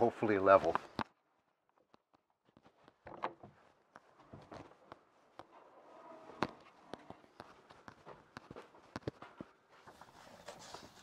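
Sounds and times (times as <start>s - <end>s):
light wooden knocks and clicks: 1.7s - 11.0s
footsteps on wooden boards: 2.6s - 10.4s.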